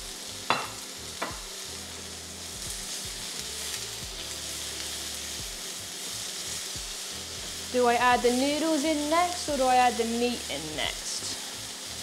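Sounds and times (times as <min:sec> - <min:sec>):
vegetables sizzling in frying pan: 0:00.0 - 0:12.0.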